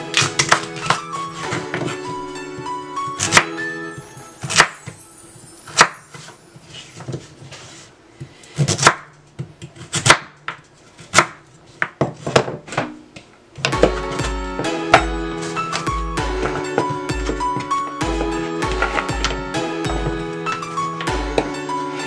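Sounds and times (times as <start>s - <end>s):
knife chopping on wooden board: 3.2s - 3.5s, 8.6s - 9.1s, 9.7s - 12.6s.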